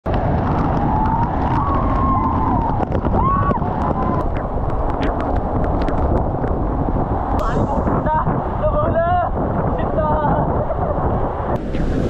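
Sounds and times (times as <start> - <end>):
vehicle rumbling: 0.0 - 12.0.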